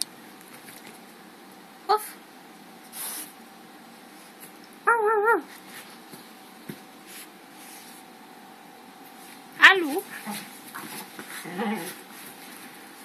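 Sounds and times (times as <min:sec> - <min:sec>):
dog whining: 0:04.8 - 0:05.5, 0:11.3 - 0:12.0.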